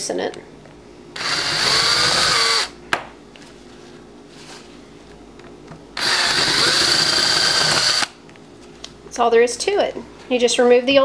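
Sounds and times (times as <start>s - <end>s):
electric drill spinning into metal: 1.2s - 2.7s, 6.0s - 8.1s.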